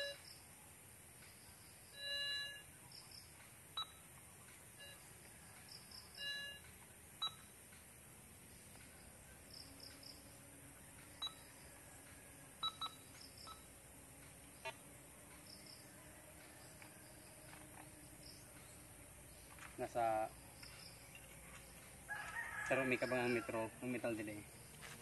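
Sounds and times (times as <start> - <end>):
metal detector beeps: 0.0 - 0.2, 1.9 - 2.7, 3.8 - 4.1, 4.7 - 5.2, 6.0 - 7.6, 11.2 - 11.5, 12.6 - 13.7
faint crickets chirping: 0.0 - 25.0.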